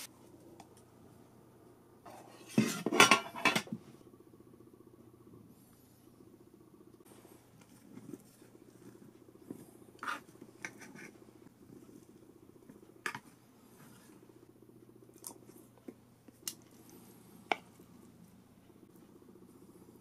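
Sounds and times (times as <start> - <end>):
low steady hum: 0.0 - 20.0
chopsticks scraping rice: 10.0 - 11.2.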